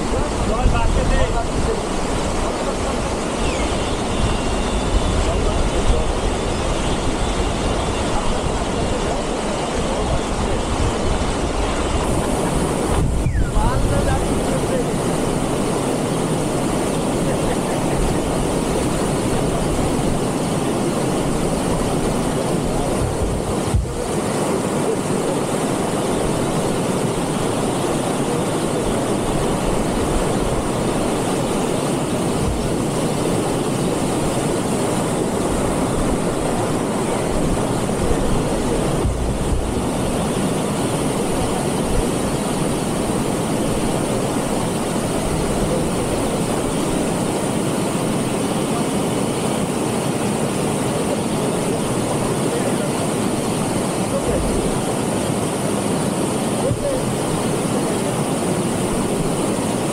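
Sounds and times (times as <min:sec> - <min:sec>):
stream rushing over boulders: 0:00.0 - 0:59.9.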